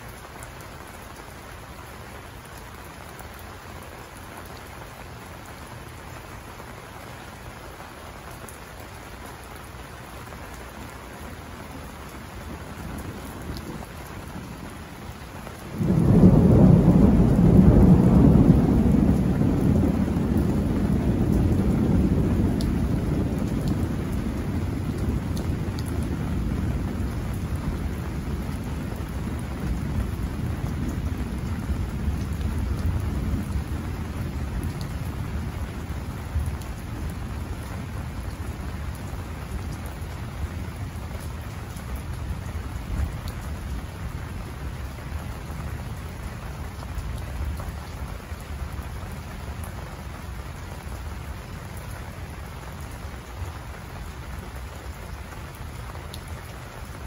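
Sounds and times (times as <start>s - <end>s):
steady rain: 0.0s - 57.0s
thunder rumbling: 15.6s - 44.8s
loud thunderclap: 15.7s - 33.6s.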